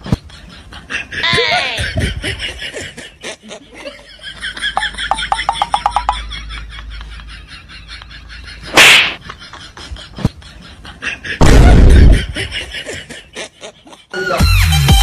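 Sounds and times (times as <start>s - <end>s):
sharp smack hit: 8.7s - 9.2s, 11.4s - 12.1s
heavy thud with deep boom: 11.4s - 12.2s
music with a beat: 14.4s - 15.0s.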